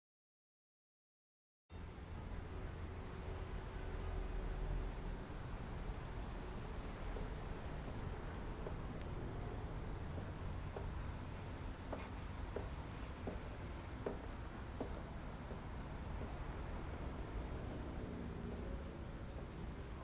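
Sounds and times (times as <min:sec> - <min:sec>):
low background rumble: 0:01.7 - 0:20.0
paintbrush brushing on canvas: 0:02.0 - 0:12.1, 0:13.1 - 0:15.0, 0:16.2 - 0:20.0.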